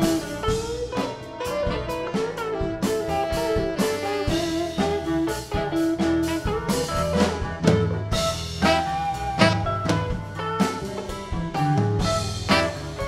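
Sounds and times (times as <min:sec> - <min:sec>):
drum kit hits: 0:00.0 - 0:13.0
electric bass: 0:00.0 - 0:13.0
electric guitar: 0:00.0 - 0:13.0.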